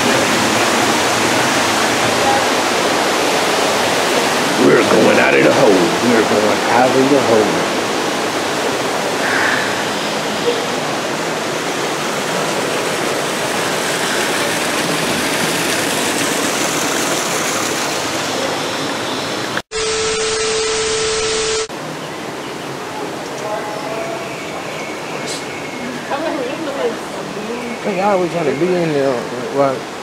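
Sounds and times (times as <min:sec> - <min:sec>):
waterfall and stream rushing: 0:00.0 - 0:30.0.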